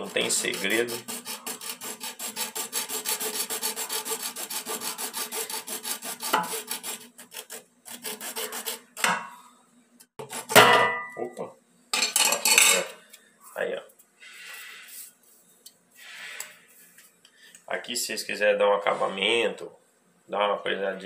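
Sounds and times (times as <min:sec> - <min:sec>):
hacksaw cutting plastic: 0:00.0 - 0:09.2.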